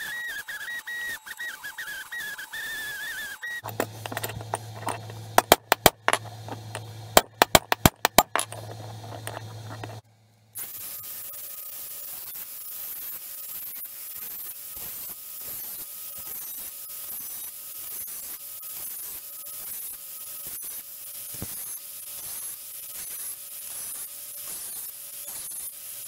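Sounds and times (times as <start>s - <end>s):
angle grinder grinding metal: 1.5s - 10.0s.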